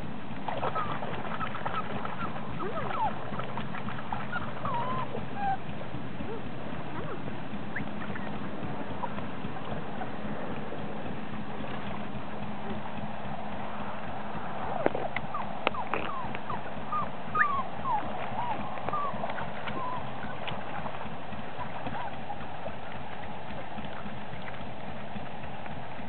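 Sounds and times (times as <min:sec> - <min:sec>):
shallow water sloshing: 0:00.0 - 0:26.0
puppy whimpering: 0:00.6 - 0:09.2, 0:14.8 - 0:21.0, 0:21.6 - 0:22.2.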